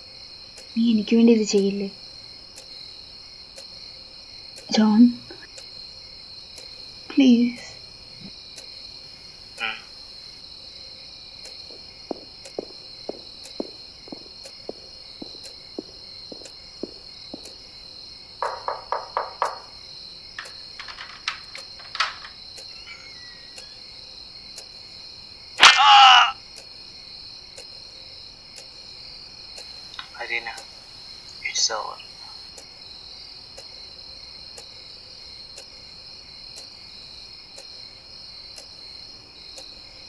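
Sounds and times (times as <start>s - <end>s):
crickets chirring: 0.0s - 40.0s
faint regular ticks: 0.4s - 25.0s, 26.5s - 26.8s, 27.4s - 32.8s, 33.4s - 40.0s
short knocks: 18.4s - 19.8s.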